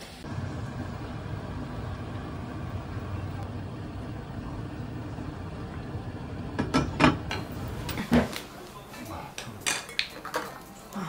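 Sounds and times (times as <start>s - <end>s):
low steady rumble: 0.2s - 7.9s
tableware clicks and knocks: 9.6s - 10.7s.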